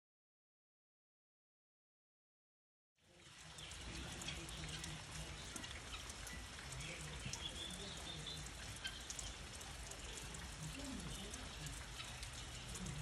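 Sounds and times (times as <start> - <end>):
light rain: 3.0 - 13.0
sharp raindrop ticks: 3.1 - 13.0.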